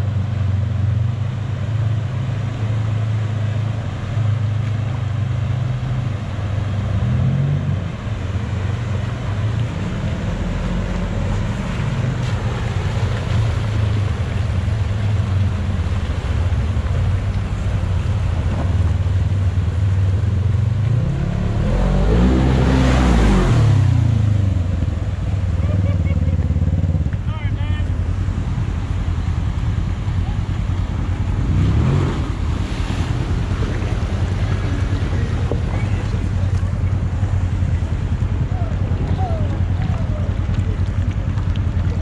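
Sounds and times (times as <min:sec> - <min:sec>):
utility vehicle engines running: 0:00.0 - 0:42.0
vehicle splashing through water: 0:00.0 - 0:42.0
water rushing over rock ledges: 0:00.0 - 0:42.0
engine revving: 0:20.7 - 0:27.2, 0:30.7 - 0:41.0.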